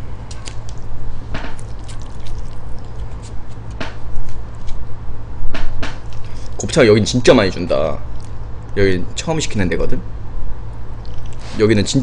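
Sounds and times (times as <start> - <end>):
soft wet squishing: 0.0 - 4.8
steady low hum: 0.0 - 12.0.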